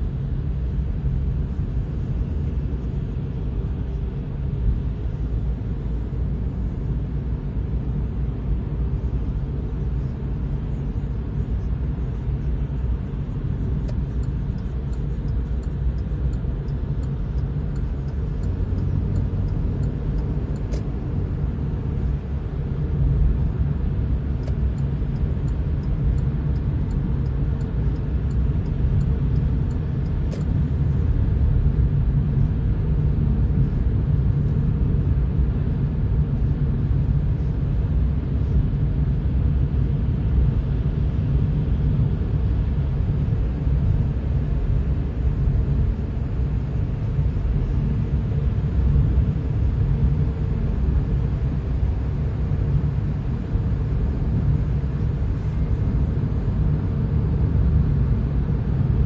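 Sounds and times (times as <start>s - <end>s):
car engine rumble: 0.0s - 59.0s.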